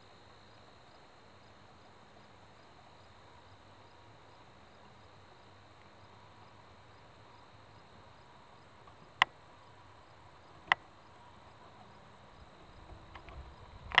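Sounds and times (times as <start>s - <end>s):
field insects trilling: 0.0s - 14.0s.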